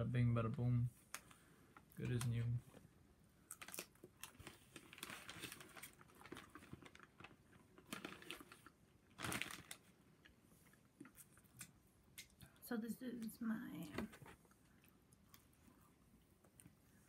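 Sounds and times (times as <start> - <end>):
chewing with small crunches: 14.4 - 17.0.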